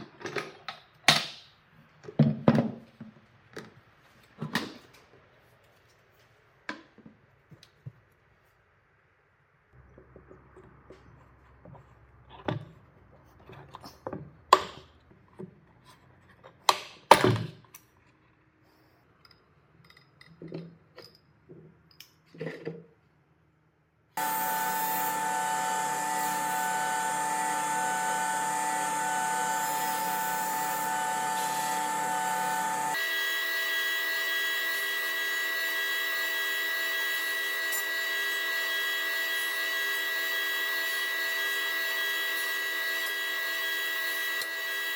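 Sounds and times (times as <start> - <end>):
table saw whining: 24.2 - 44.9.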